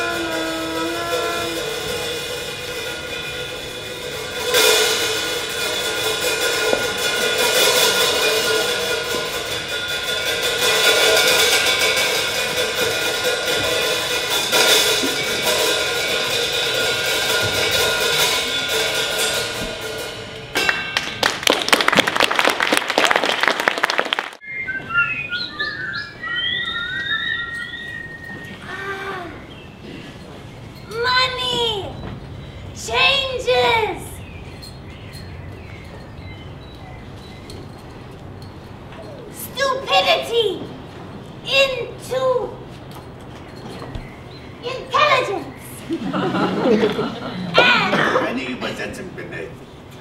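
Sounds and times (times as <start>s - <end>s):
trumpet playing: 0.0s - 18.6s
crashing percussion: 0.0s - 24.4s
fast rattling percussion: 0.0s - 24.4s
whistle glides: 24.4s - 29.5s.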